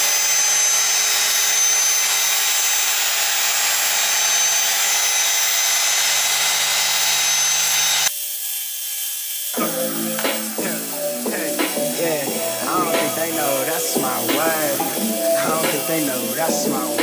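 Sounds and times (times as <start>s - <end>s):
rotary polisher whirring: 0.0s - 17.0s
music: 9.6s - 17.0s.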